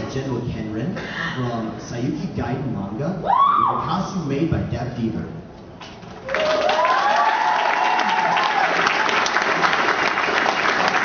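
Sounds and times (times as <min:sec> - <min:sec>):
rising whoop: 0:03.2 - 0:03.8, 0:06.3 - 0:09.0
audience applauding and cheering: 0:06.2 - 0:11.0.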